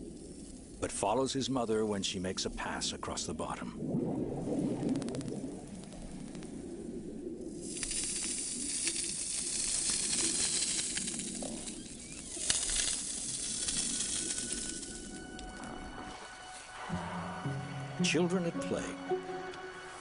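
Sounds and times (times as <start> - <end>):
whale rubbing on pebble seabed: 4.6 - 16.0
pebbles clicking: 7.6 - 15.5.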